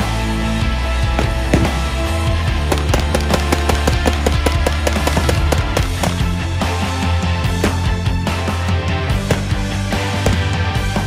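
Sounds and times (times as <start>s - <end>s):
hard rock music: 0.0s - 11.0s.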